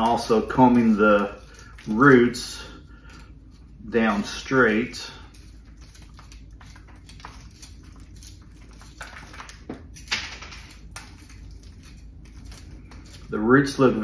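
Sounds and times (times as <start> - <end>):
rake scratching soil: 0.0 - 2.5.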